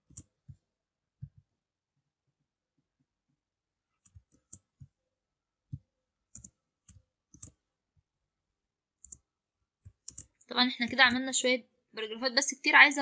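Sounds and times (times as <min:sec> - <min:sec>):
faint keyboard keystrokes: 0:05.7 - 0:07.6, 0:09.0 - 0:11.3.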